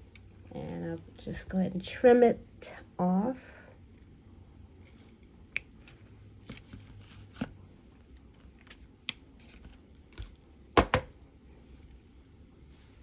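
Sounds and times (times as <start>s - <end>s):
clicks and rustles of wire and tools: 4.8s - 10.4s.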